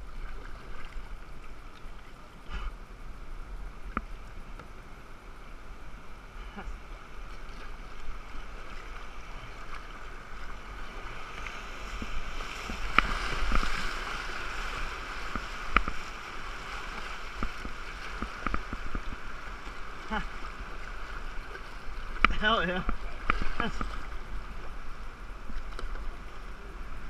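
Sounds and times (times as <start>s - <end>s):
paddle splashes: 0.0s - 2.7s, 6.3s - 27.0s
river water rushing: 0.0s - 27.0s.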